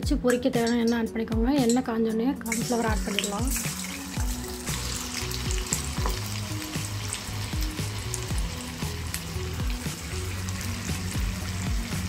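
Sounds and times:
food deep-frying in oil: 2.5s - 12.0s
background music with bass beat: 2.7s - 12.0s.

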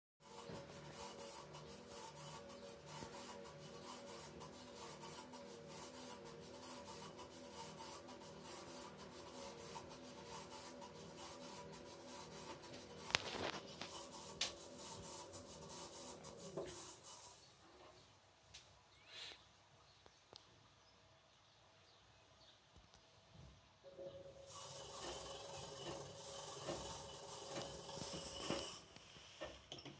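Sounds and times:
washing machine drum grinding: 0.2s - 17.3s, 23.9s - 29.9s.

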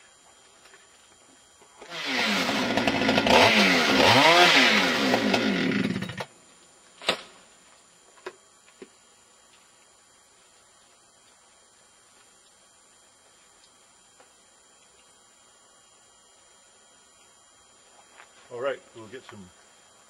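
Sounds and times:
chainsaw revving: 1.8s - 6.3s.

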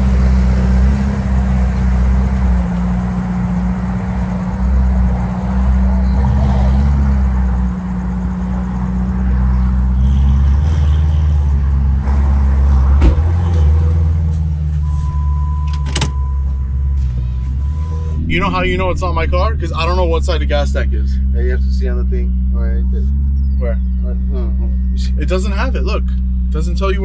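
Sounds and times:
car engine droning: 0.0s - 27.0s
steady high beep: 14.8s - 27.0s.

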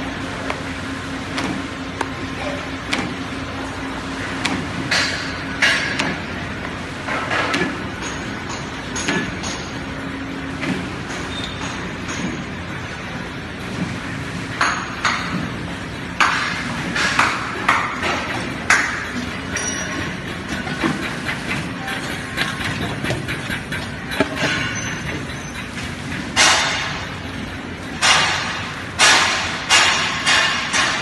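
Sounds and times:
metallic clanks and clatters: 16.2s - 31.0s.

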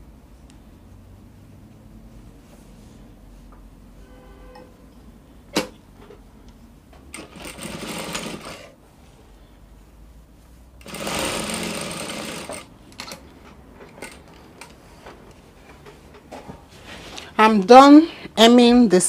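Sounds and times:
sewing machine stitching: 7.1s - 8.8s, 10.8s - 13.2s.

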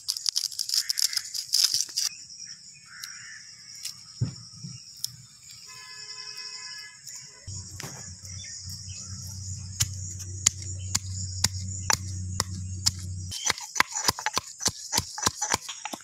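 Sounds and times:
crickets chirring: 0.0s - 16.0s
low rumble: 7.5s - 13.4s
sharp clicks: 7.5s - 16.0s.

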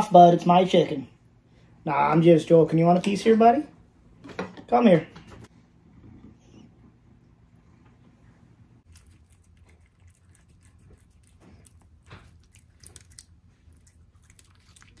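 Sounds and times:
cat chewing and licking: 8.8s - 15.0s.

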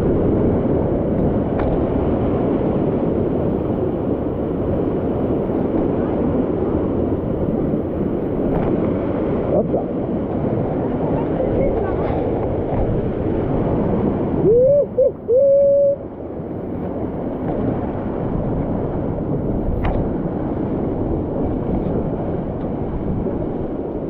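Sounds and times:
water rushing in torrent: 0.0s - 24.0s
loud rising hoot-like tone: 14.4s - 16.0s.

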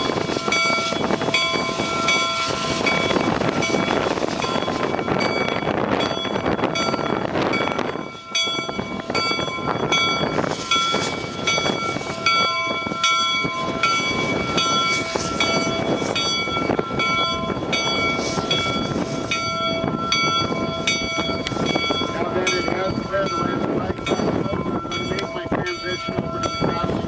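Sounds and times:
steam hissing: 0.0s - 4.9s
locomotive bell ringing: 0.0s - 27.0s
steam locomotive engine: 0.0s - 27.0s.

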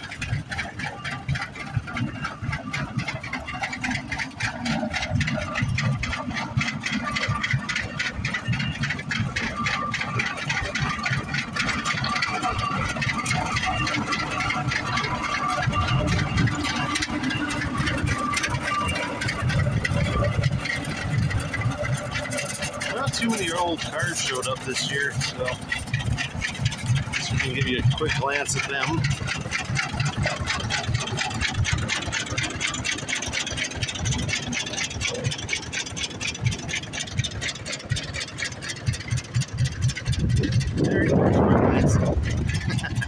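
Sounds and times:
tractor engines running: 0.0s - 43.0s
wind buffeting microphone: 35.3s - 43.0s.

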